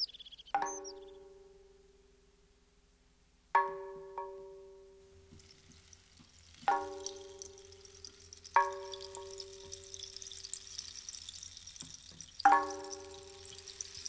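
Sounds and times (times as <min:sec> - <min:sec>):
high fizzing crackle: 0:05.3 - 0:14.0.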